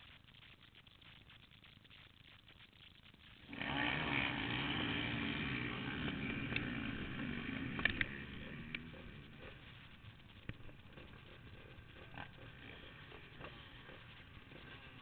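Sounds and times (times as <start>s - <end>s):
dirt bike engines revving: 3.5s - 15.0s
sharp clicks: 6.2s - 15.0s.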